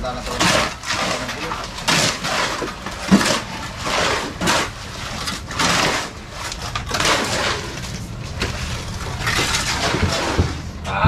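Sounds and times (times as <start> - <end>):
shovels scraping gravel mix: 0.0 - 10.9
faint low hum: 0.0 - 11.0.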